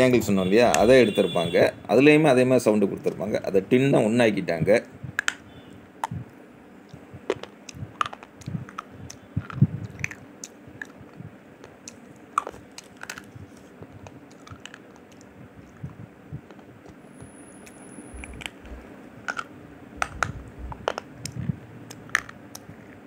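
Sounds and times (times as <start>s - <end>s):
person chewing crisp crunches: 7.2s - 16.6s.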